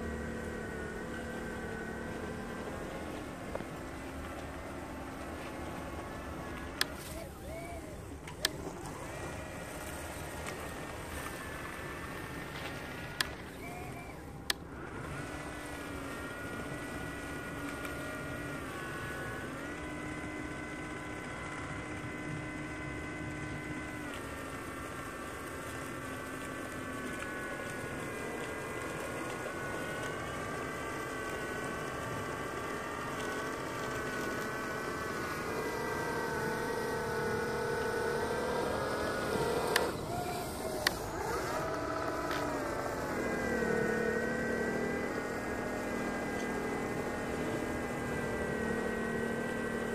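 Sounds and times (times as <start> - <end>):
small motor whine: 0.0 - 49.9
sharp clicks: 36.4 - 43.0.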